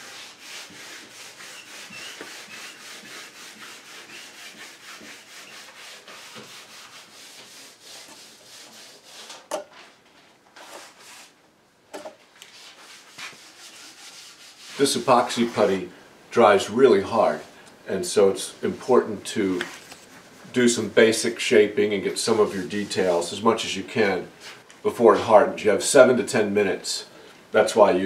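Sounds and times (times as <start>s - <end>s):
blade smoothing putty: 0.0s - 9.4s.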